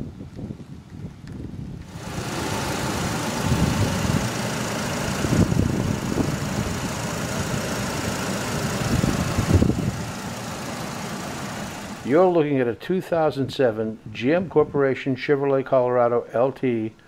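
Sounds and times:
car engine idling: 0:01.8 - 0:12.6.

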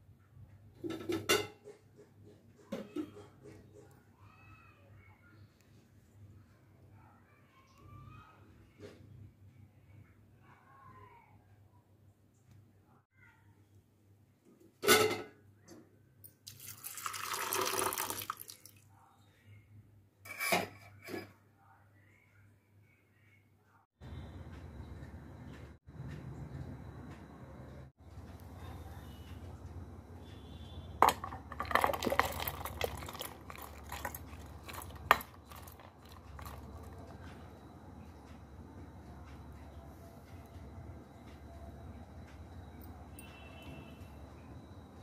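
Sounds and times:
water pouring into a bowl: 0:16.4 - 0:18.9, 0:31.0 - 0:37.2
grains clattering into steel jar: 0:31.0 - 0:36.9.

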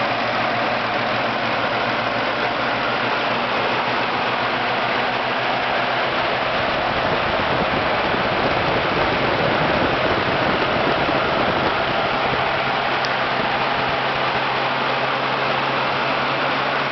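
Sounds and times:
carburetor intake rushing noise: 0:00.0 - 0:16.9
engine running: 0:00.0 - 0:16.9.

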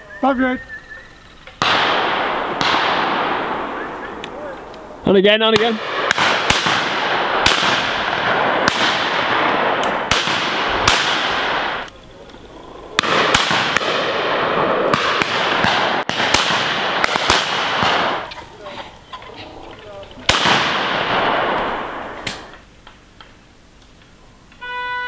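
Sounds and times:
shotguns firing: 0:01.5 - 0:18.4, 0:19.9 - 0:22.6
gunshot echoes: 0:01.6 - 0:04.4, 0:05.5 - 0:11.9, 0:13.0 - 0:18.3, 0:20.3 - 0:22.5.

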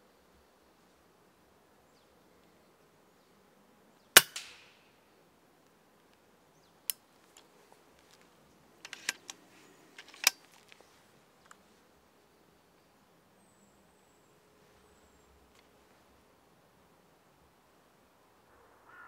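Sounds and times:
air rifle shot: 0:04.2 - 0:04.9.

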